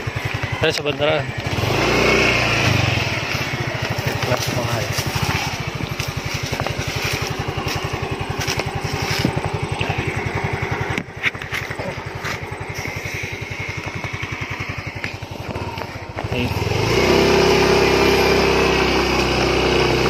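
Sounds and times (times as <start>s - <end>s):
small motorcycle engine idling: 0.0s - 20.0s.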